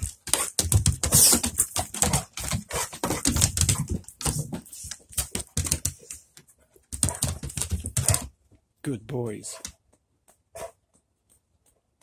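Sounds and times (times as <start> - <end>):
dog claws clicking on wooden boards: 0.0 - 8.6.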